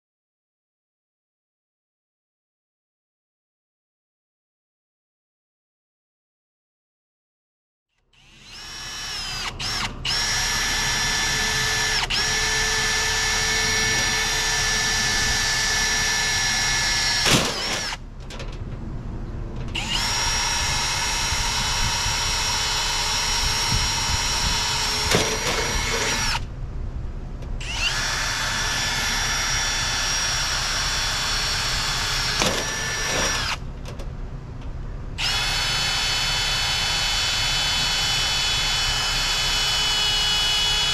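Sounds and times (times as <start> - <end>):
power tool motor whining: 8.2 - 18.0, 19.8 - 26.4, 27.6 - 33.6, 35.2 - 40.9.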